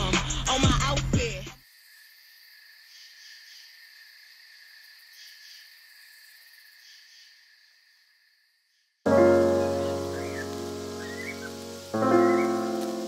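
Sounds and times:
insect high trill: 1.6s - 13.0s
soft insect chirps: 1.6s - 13.0s.

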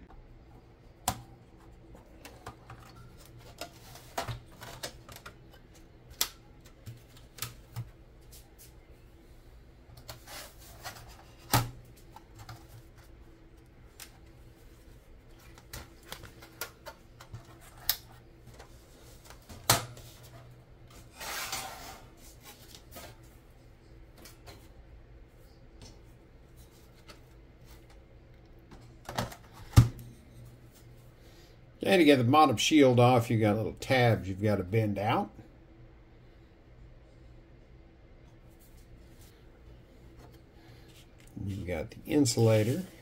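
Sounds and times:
faint steady hum: 0.0s - 43.0s.

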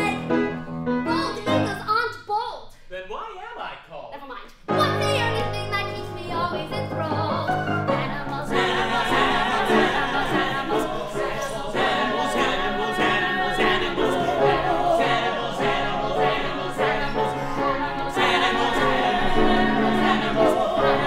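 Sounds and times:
musical accompaniment: 0.0s - 1.9s, 4.7s - 21.0s
voices singing together: 6.7s - 21.0s.

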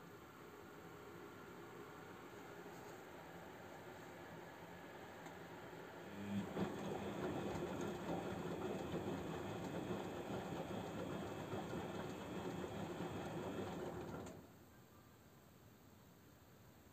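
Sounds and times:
washing machine running: 5.5s - 14.5s.

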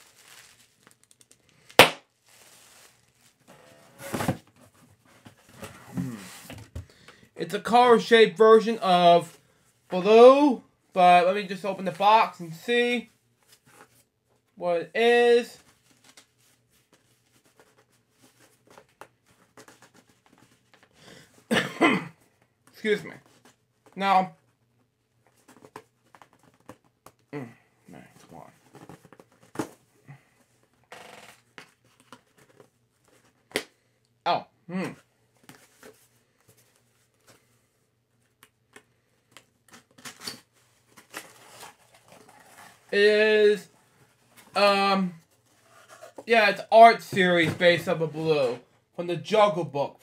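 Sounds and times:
packaging being opened: 0.0s - 3.4s
packaging rustling: 0.0s - 3.5s.

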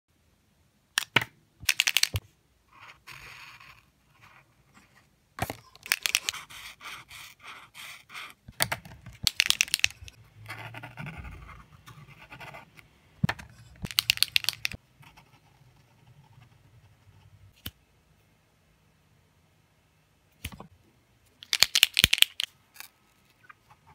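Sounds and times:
marker mixing ball rattling: 1.0s - 2.2s, 5.6s - 7.9s, 8.6s - 10.2s, 13.8s - 14.8s, 21.4s - 22.9s
felt tip scratching paper: 6.0s - 8.4s.

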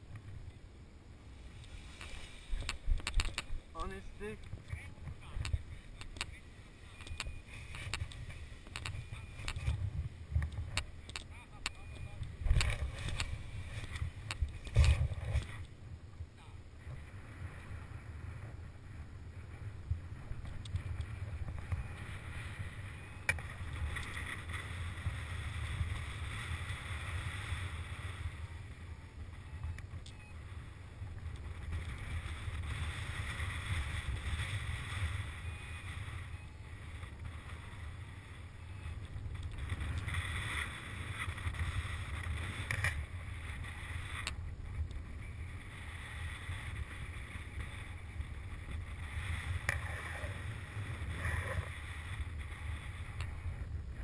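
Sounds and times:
wind rushing over microphone: 0.0s - 54.0s
sharp clicks: 2.6s - 3.6s, 5.4s - 6.4s, 7.0s - 9.8s, 10.4s - 15.7s.

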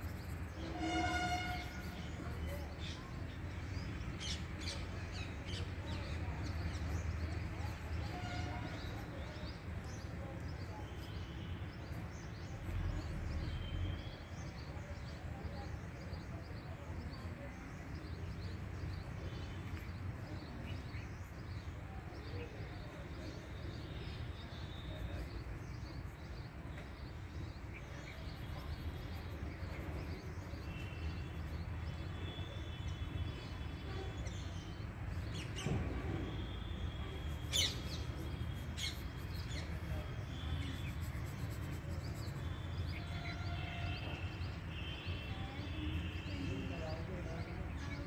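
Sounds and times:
birds chirping: 9.8s - 48.0s.

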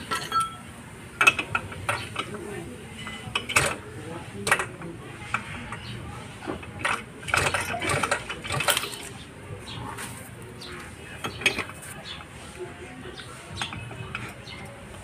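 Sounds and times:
socket wrench clinking and rattling: 0.0s - 2.3s.

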